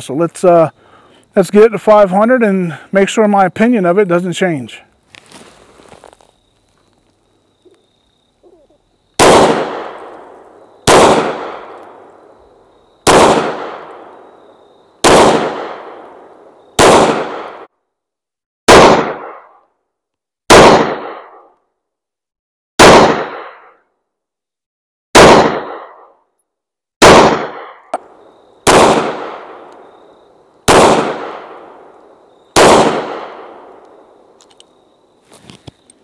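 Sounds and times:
pistol shots: 9.2s - 12.1s, 13.0s - 14.4s, 15.0s - 17.7s, 18.7s - 19.5s, 20.5s - 21.4s, 22.8s - 23.7s, 25.1s - 26.1s, 27.0s - 34.1s.

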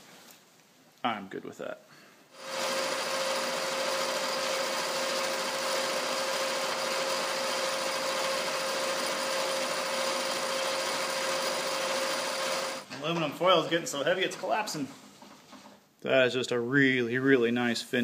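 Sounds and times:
metal lathe cutting: 2.4s - 12.9s.

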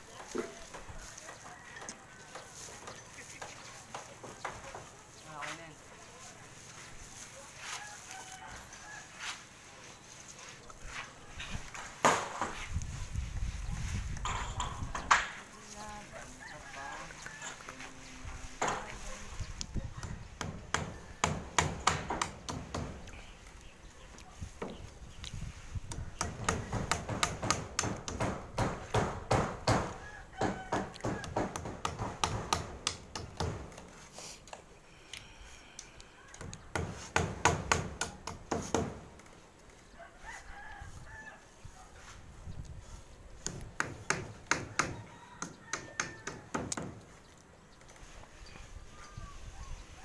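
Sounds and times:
hammer striking nails: 26.2s - 33.8s.

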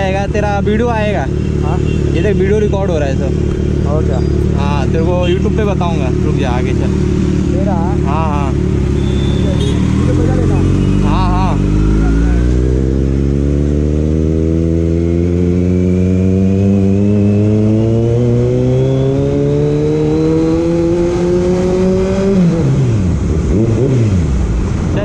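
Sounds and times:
motorcycle engine accelerating: 0.0s - 25.0s.

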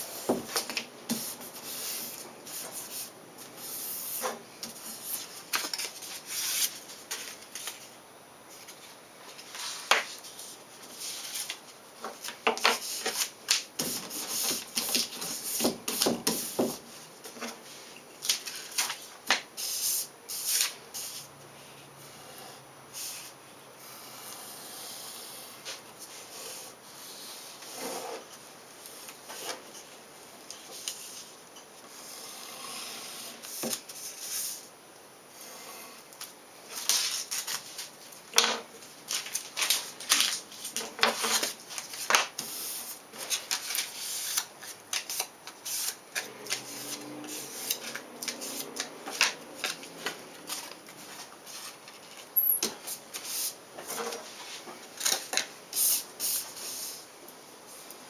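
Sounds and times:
contact paper rustling and crackling: 0.1s - 21.3s, 36.2s - 57.0s.

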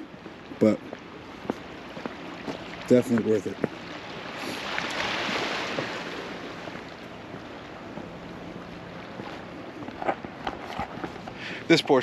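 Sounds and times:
surf washing against rocks: 1.6s - 12.0s.

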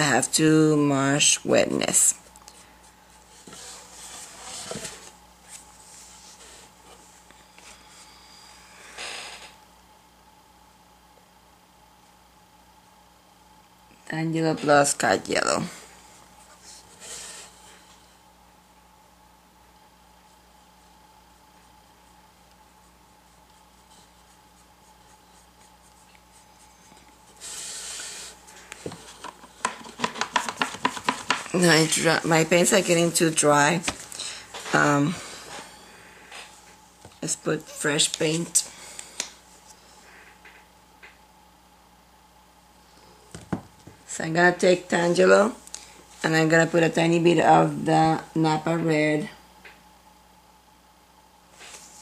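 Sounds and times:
paintbrush scratching on panel: 22.8s - 32.0s.

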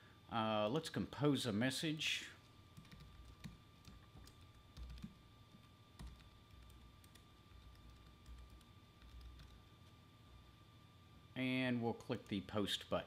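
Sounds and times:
faint high whine: 0.0s - 13.0s
typing on a computer keyboard: 2.8s - 9.6s.

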